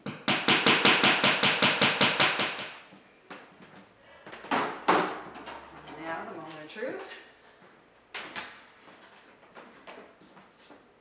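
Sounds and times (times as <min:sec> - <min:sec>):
hammer tapping nail: 0:00.0 - 0:02.8.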